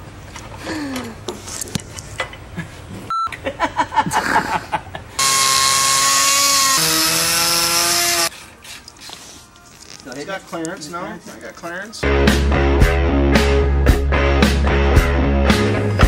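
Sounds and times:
power drill whining: 5.2s - 8.3s.

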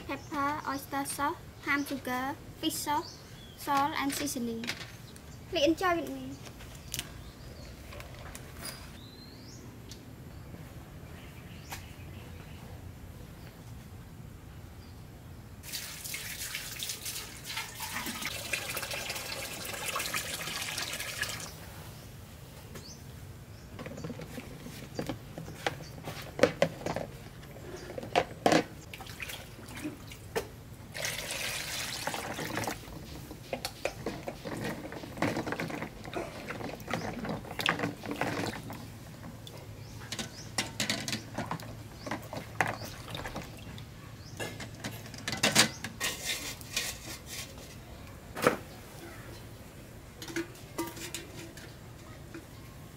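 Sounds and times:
water running into basin: 15.6s - 21.6s, 28.9s - 33.2s, 33.9s - 43.9s
water splashing and sloshing: 15.6s - 21.6s, 23.8s - 47.5s.

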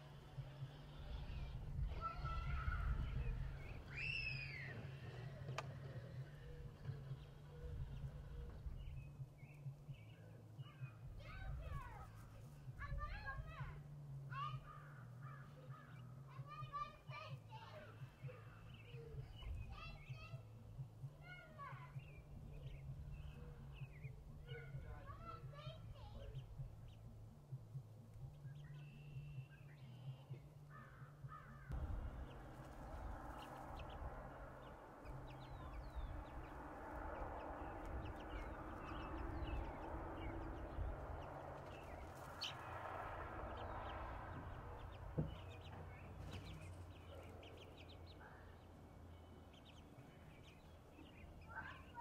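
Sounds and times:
faint background noise: 0.0s - 52.0s
chicks peeping: 31.7s - 42.8s, 43.5s - 48.7s, 49.5s - 52.0s.

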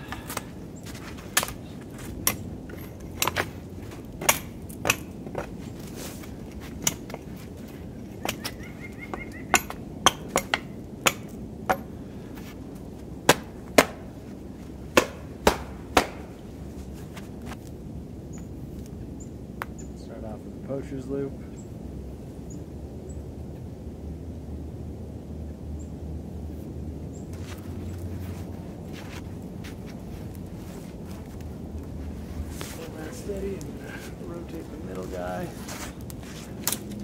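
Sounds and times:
axe chopping wood: 1.3s - 1.6s, 3.2s - 5.6s, 9.5s - 11.9s, 13.3s - 14.1s, 14.9s - 16.4s.

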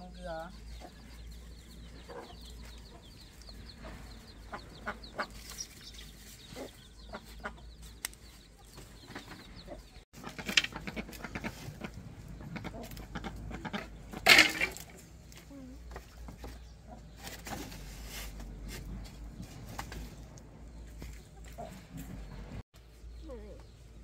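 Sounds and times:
chickens clucking: 0.5s - 22.6s.

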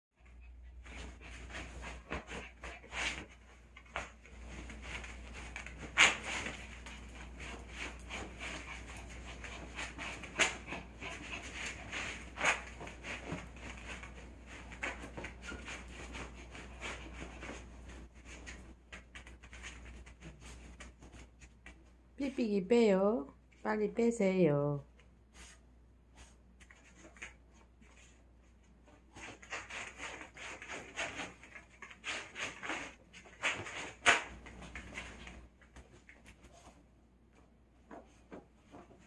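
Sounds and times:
dog scratching at fabric: 0.3s - 21.9s, 28.8s - 36.8s.

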